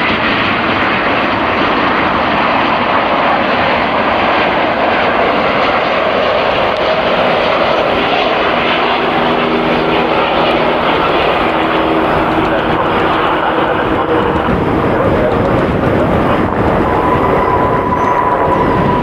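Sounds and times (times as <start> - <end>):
jet engines rushing: 0.0 - 19.0
steady low tones: 7.6 - 19.0.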